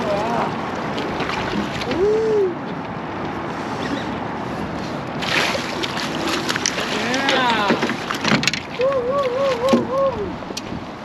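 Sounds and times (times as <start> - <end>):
wind and water rushing: 0.0 - 11.0
landing net splashing into water: 0.9 - 2.0, 5.2 - 9.9
person hooting: 1.9 - 2.6, 8.8 - 10.3.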